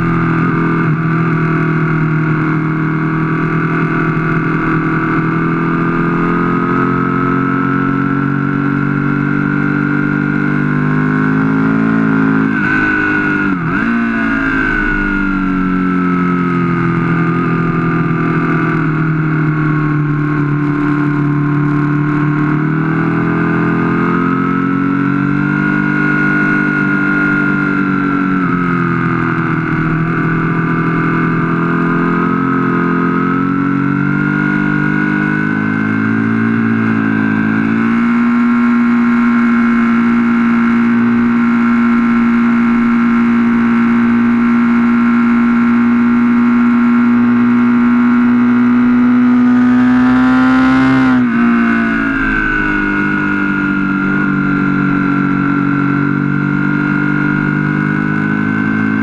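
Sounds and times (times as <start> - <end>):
motorcycle engine revving: 0.0 - 59.0
rushing wind: 12.1 - 23.8, 48.1 - 56.5.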